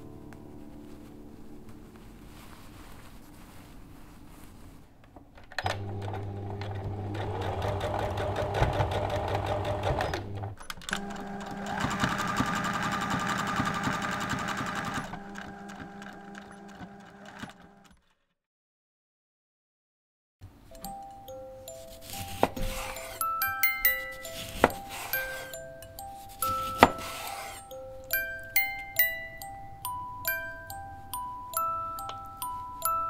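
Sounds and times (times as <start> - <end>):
sewing machine stitching: 5.6 - 18.0.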